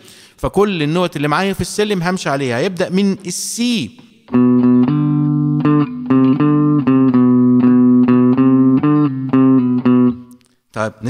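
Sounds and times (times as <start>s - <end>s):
clean electric guitar melody: 4.3s - 10.4s.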